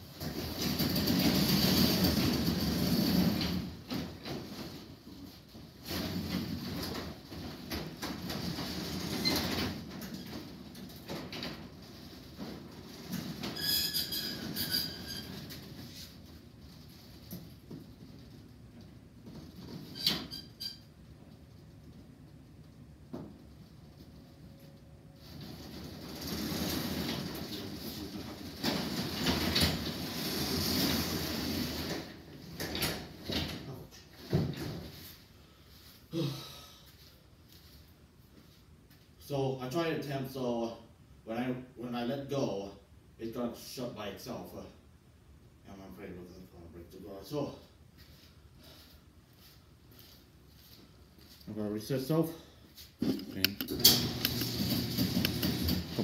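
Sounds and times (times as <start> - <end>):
garage door rollers rumbling: 0.0 - 35.1, 53.7 - 56.0
high metallic squeals: 13.5 - 15.5, 19.9 - 20.9.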